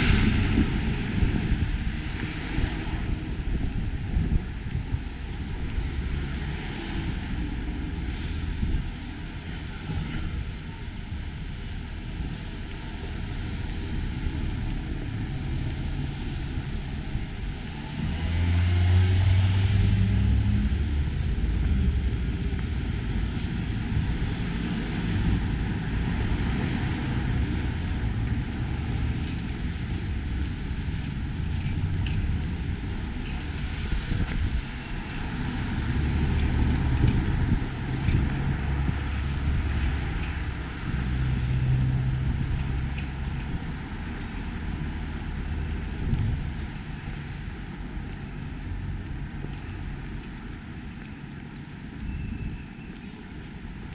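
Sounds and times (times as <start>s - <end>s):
deep engine passing: 0.0s - 3.6s, 13.2s - 40.1s
rumble of passing vehicles: 0.0s - 53.9s.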